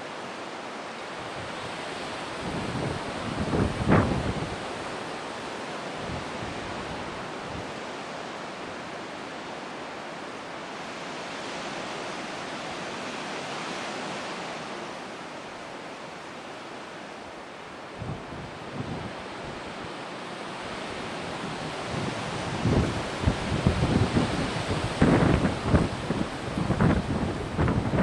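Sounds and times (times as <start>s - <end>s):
low wind buffets: 1.1s - 10.2s, 14.1s - 28.0s
wind rushing over microphone: 1.4s - 4.9s, 6.0s - 7.8s, 17.8s - 20.0s, 20.7s - 28.0s.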